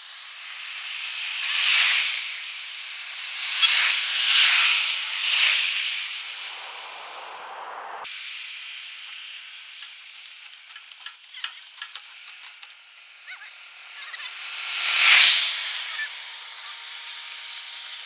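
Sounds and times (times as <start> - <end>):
steady hiss: 0.0 - 18.0
ratchet strap clicking: 9.1 - 12.8.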